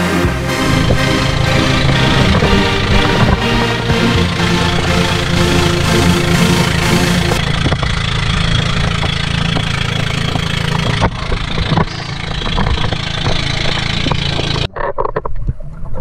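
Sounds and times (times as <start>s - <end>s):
boat engine running: 0.0s - 14.7s
wind: 7.4s - 16.0s.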